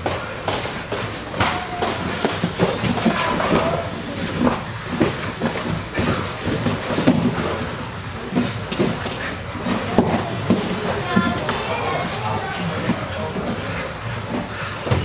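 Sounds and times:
bodies thudding on foam mats: 0:00.0 - 0:11.3.

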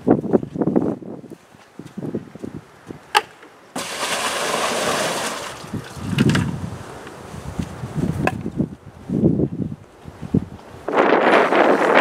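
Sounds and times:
wind on microphone: 0:00.0 - 0:03.1, 0:04.5 - 0:12.0
water pouring and splashing: 0:03.8 - 0:06.5.

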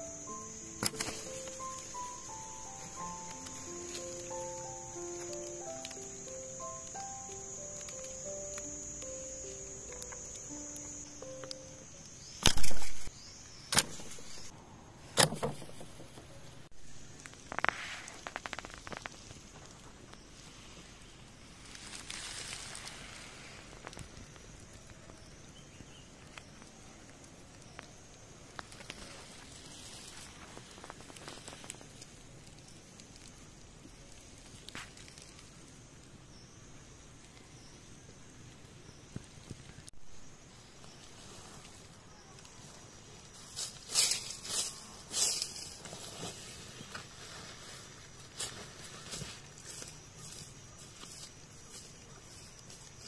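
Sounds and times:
dry leaves rustling and crackling: 0:00.0 - 0:14.5, 0:16.8 - 0:36.0, 0:38.8 - 0:53.0
sharp clicks: 0:00.3 - 0:13.1.

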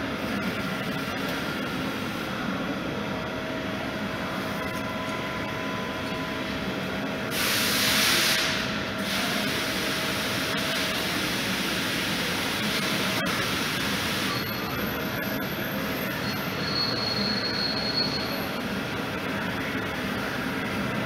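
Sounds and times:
compressed air hiss: 0:07.3 - 0:09.8.

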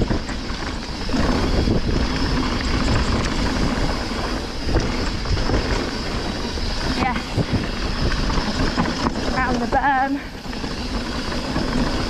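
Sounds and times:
bike knocks and rattles: 0:00.0 - 0:12.0
bike tyres rumbling on dirt: 0:00.0 - 0:12.0
wind buffeting microphone: 0:00.0 - 0:12.0.

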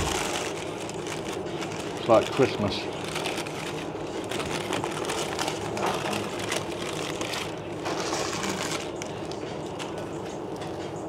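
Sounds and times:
paper wrapper crinkling: 0:00.0 - 0:10.4
steady background hum: 0:00.0 - 0:11.0.

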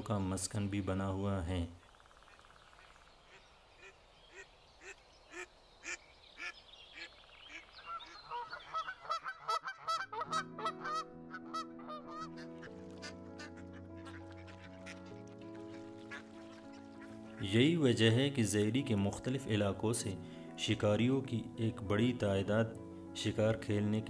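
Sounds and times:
flock of birds calling: 0:02.0 - 0:17.6.

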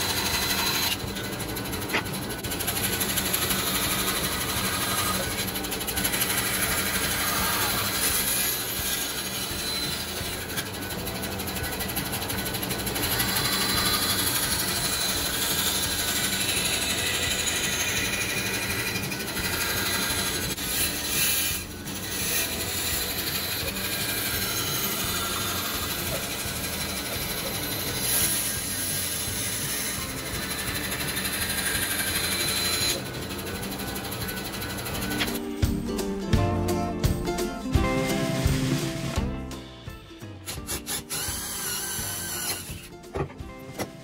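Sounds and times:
bandsaw cutting plywood: 0:00.0 - 0:35.6, 0:40.2 - 0:44.0.

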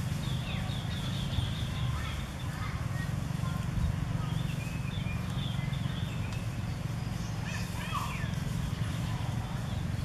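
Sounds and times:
high chirping calls: 0:00.0 - 0:10.0.

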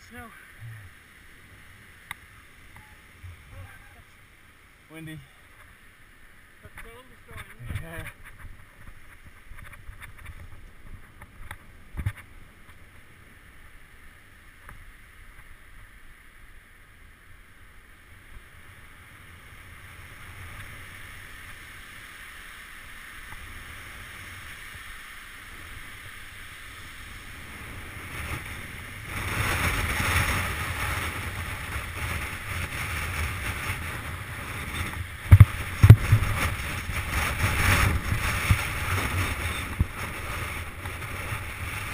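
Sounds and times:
bike tyres rumbling over gravel: 0:23.2 - 0:41.9
wind buffeting microphone: 0:27.0 - 0:41.9
bike knocking over bumps: 0:35.2 - 0:38.7.

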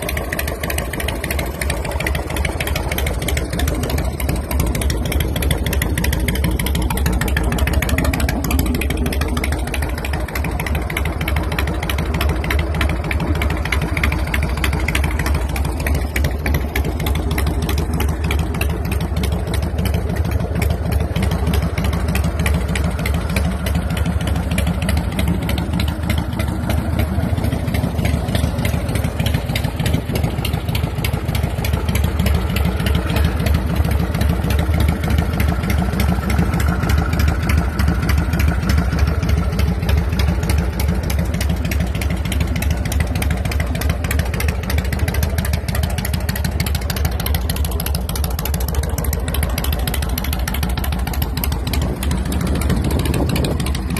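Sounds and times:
motorcycle engine idling: 0:00.0 - 0:53.9.

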